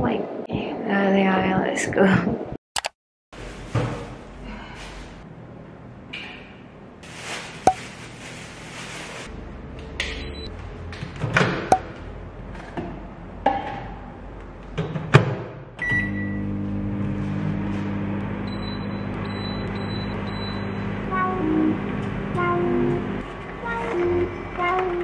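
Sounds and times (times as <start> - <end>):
microwave oven beeping: 10.0 - 10.5, 15.8 - 24.4
cooktop button beeps: 15.8 - 16.4
microwave oven humming: 15.8 - 25.0.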